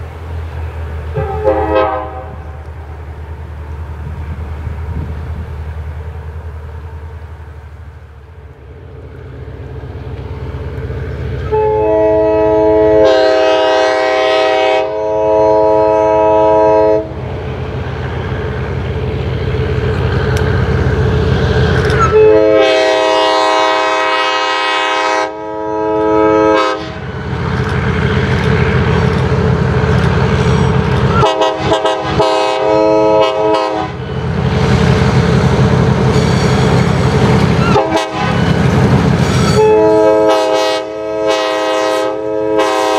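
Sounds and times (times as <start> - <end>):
low engine rumble: 0.0 - 14.4, 15.0 - 24.8, 25.5 - 41.3
locomotive air horn blasts: 1.1 - 2.7, 11.4 - 17.2, 22.0 - 27.1, 31.1 - 34.0, 37.6 - 38.6, 39.3 - 42.9.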